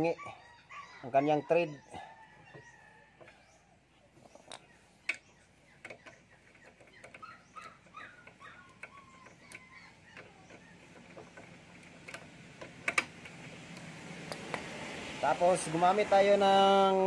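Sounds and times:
faint animal whine: 0:00.0 - 0:11.4
metallic clicks of nut threading: 0:10.2 - 0:14.6.

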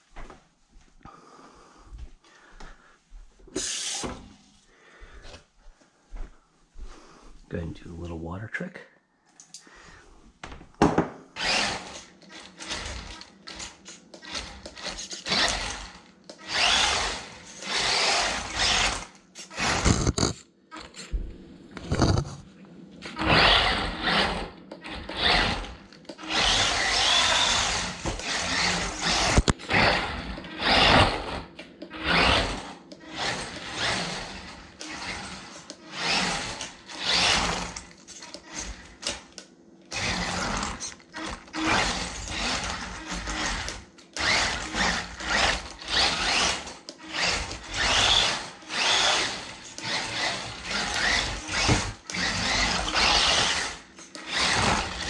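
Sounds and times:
rc truck motor whining: 0:11.4 - 0:20.3, 0:23.2 - 0:39.3, 0:39.9 - 0:55.0.

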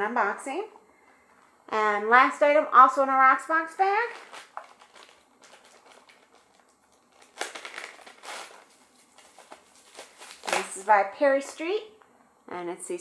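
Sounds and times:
plastic bag crinkling: 0:03.7 - 0:11.6.

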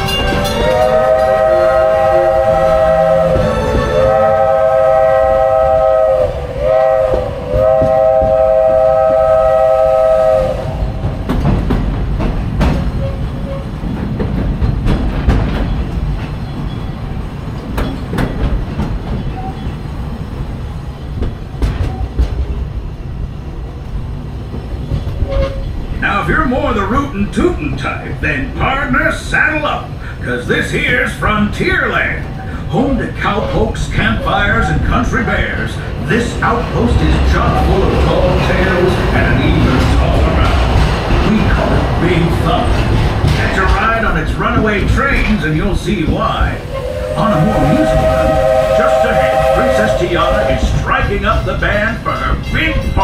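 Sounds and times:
wheels clacking over rail joints: 0:00.0 - 0:06.1, 0:10.8 - 0:29.9, 0:30.6 - 0:53.0
steam locomotive whistle: 0:00.0 - 0:11.0, 0:46.6 - 0:51.1
train wheel rumble: 0:00.0 - 0:53.0.

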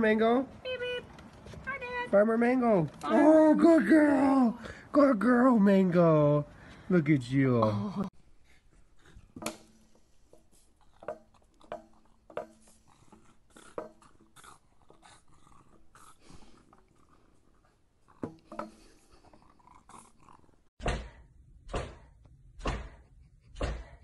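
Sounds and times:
small dog growling: 0:12.8 - 0:18.3, 0:19.1 - 0:20.7.

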